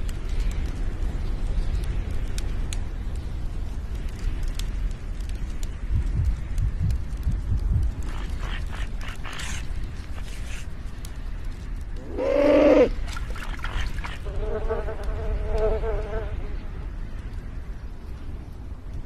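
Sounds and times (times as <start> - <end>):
low steady rumble: 0.0 - 19.0
flies buzzing: 8.0 - 10.7, 12.0 - 16.5.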